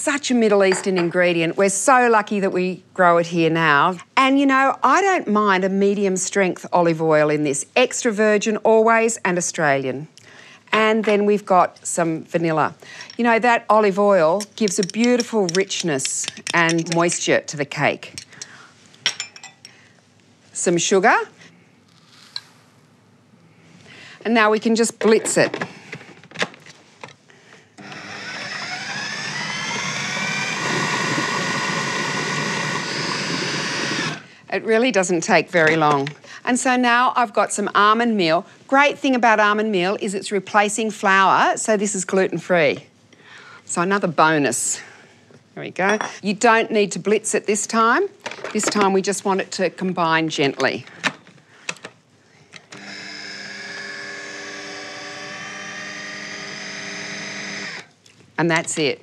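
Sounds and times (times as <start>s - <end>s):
food processor motor whining: 27.8s - 34.3s, 52.7s - 57.9s.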